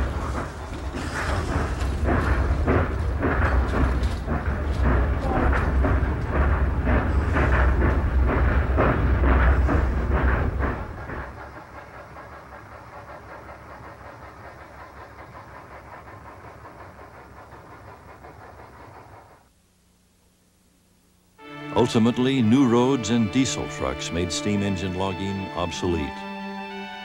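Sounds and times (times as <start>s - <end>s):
heavy low rumble: 0.0s - 17.5s
steam locomotive chuffing: 0.0s - 19.5s, 21.4s - 27.0s.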